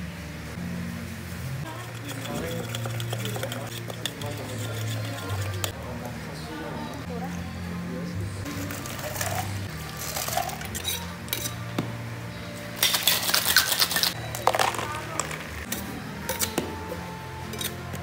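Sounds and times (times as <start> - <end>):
metal shaker tins clinking: 1.7 - 5.7, 8.5 - 11.7, 12.8 - 16.6, 17.4 - 18.0
shaker rattling: 1.7 - 5.7, 8.5 - 11.6, 12.8 - 16.6.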